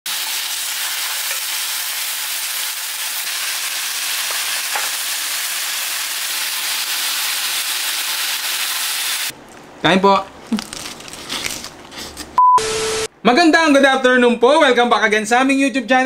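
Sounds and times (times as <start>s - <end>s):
meat sizzling on a grill pan: 0.1s - 9.3s.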